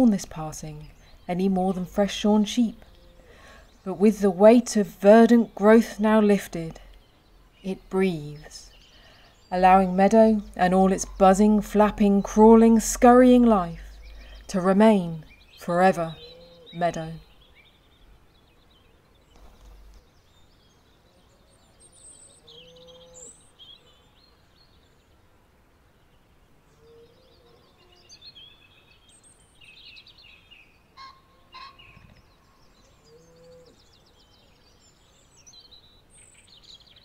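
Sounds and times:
high bird chirps and trills: 0.0 - 25.0, 26.8 - 37.0
lower bird call: 15.2 - 17.6, 21.1 - 24.4, 31.0 - 34.6.

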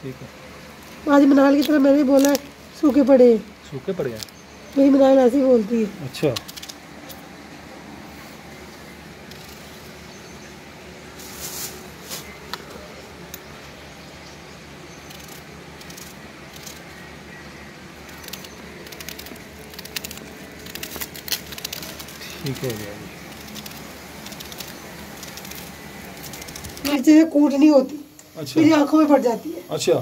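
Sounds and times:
onion skin rustling: 0.7 - 7.2, 11.1 - 13.4, 18.0 - 27.1.

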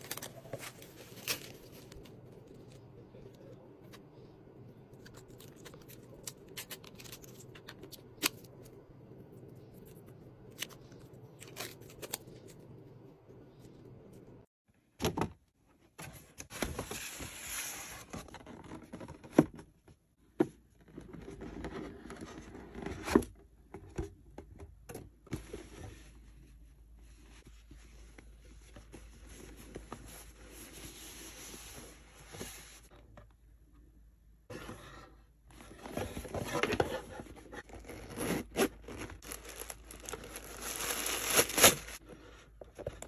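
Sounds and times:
packaging rustling and tearing: 37.6 - 42.0.

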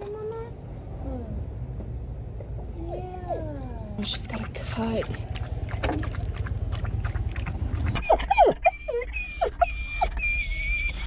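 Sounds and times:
dog lapping water from metal bowl: 4.0 - 8.4
dog whining: 7.8 - 11.0.

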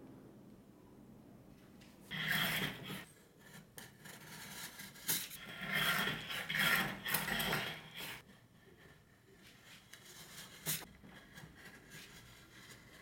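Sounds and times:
metal blade scraping ice cream: 2.1 - 8.2.

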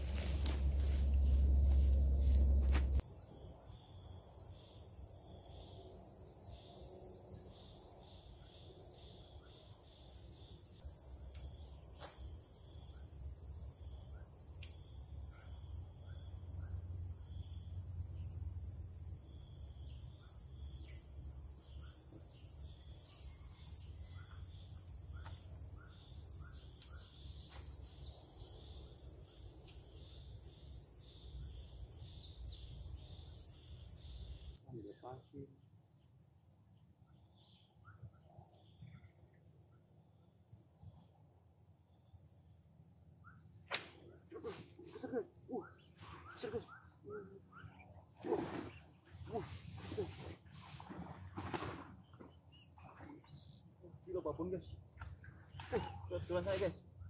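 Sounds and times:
high-pitched insect drone: 0.0 - 5.8.

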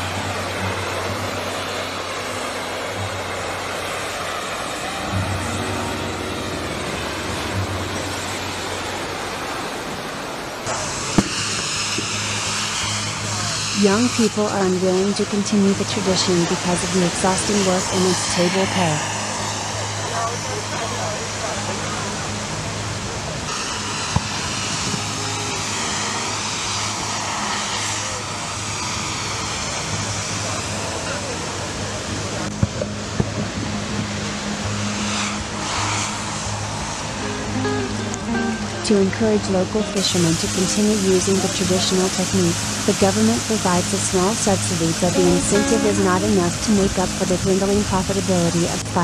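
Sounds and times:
boat engine hum: 0.0 - 49.0
sharp pop: 11.1 - 12.2.

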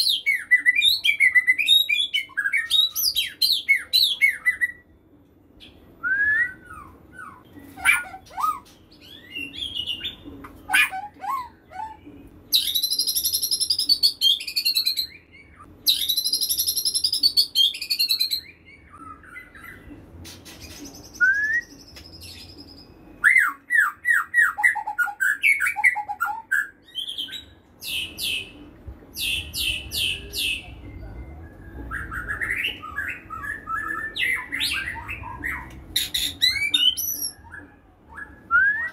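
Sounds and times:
bird singing trills: 5.6 - 20.0.

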